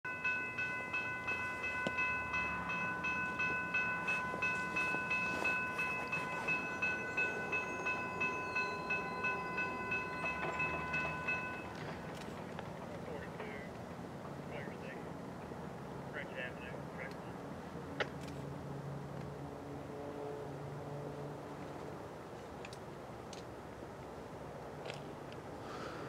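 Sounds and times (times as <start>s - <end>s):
railroad crossing bell ringing: 0.0s - 12.4s.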